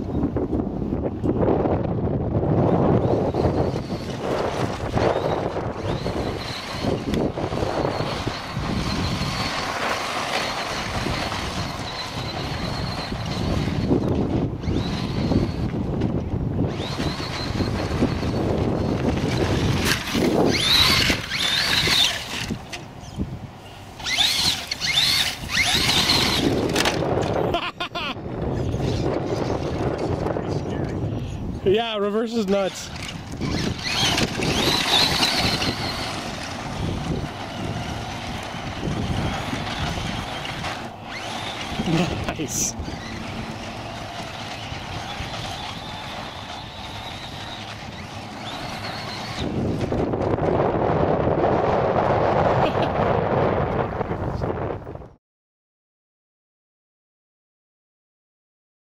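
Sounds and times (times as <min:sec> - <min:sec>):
wind rumble on microphone: 0:00.0 - 0:55.2
rc truck motor whining: 0:00.1 - 0:54.8.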